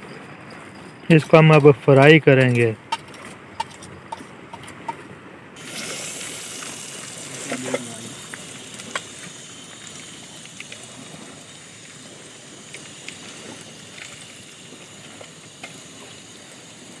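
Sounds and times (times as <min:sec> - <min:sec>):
gas burner hissing: 0:05.6 - 0:17.0.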